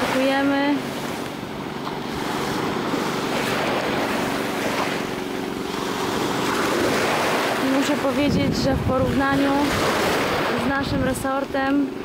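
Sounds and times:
boat engine humming: 0.0 - 12.0
waves breaking on rocky shore: 0.0 - 12.0.

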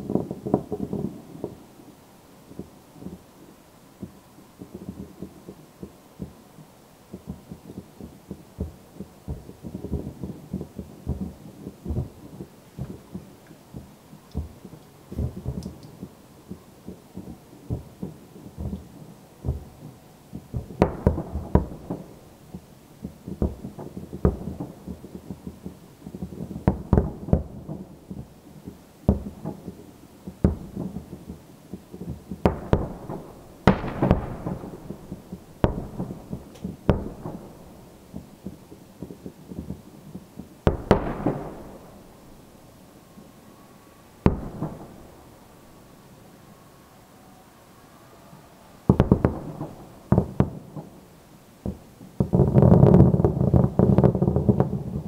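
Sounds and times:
firework shells bursting: 32.4 - 39.7, 40.6 - 42.4.

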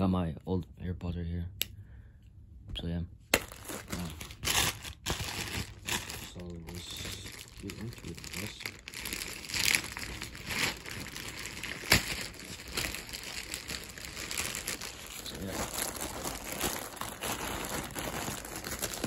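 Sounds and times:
plastic bag crinkling: 3.4 - 19.0
plastic bag snap: 11.6 - 13.0.

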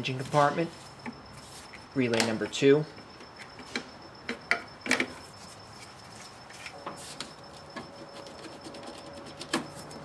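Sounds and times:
plastic relay clicks: 2.0 - 5.1.

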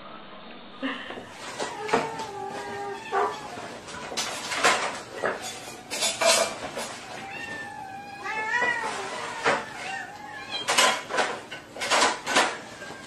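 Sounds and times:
kittens meowing: 1.3 - 4.2, 6.9 - 11.1.

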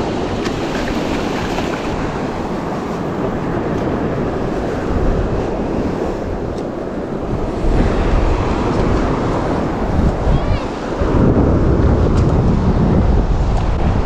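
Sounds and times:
surf breaking on shore: 0.0 - 14.0
wind buffeting microphone: 0.0 - 14.0.

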